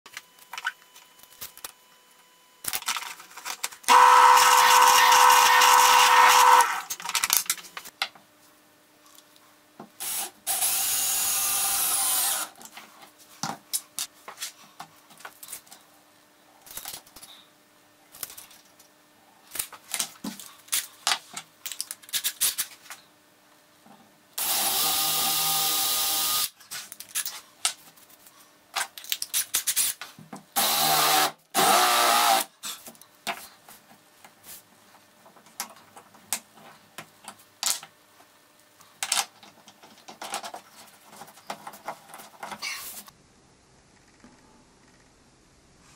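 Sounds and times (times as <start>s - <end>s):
cordless drill running: 3.9s - 6.8s, 10.0s - 12.5s, 24.4s - 26.5s, 30.6s - 32.5s.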